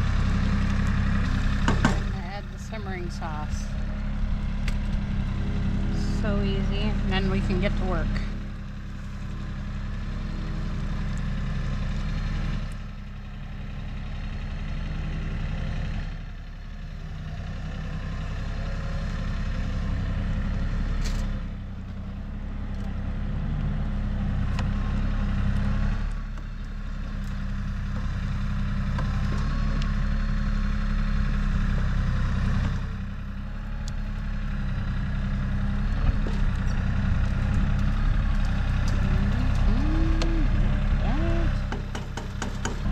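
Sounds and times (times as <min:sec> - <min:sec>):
engine running steadily: 0:00.0 - 0:42.9.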